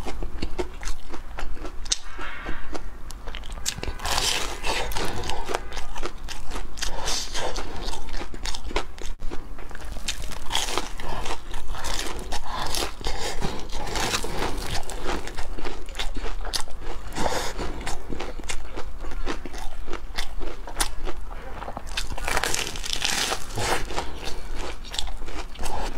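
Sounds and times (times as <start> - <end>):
crunchy chewing: 0.0 - 25.9.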